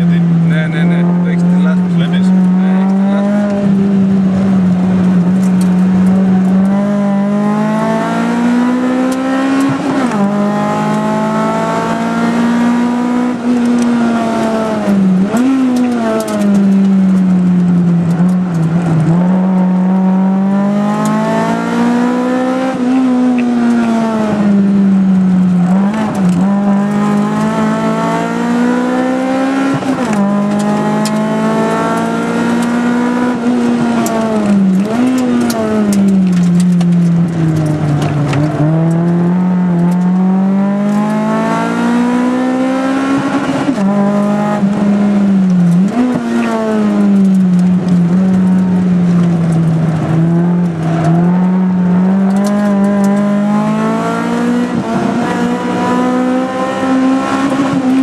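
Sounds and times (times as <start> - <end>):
car engine revving: 0.0 - 58.0.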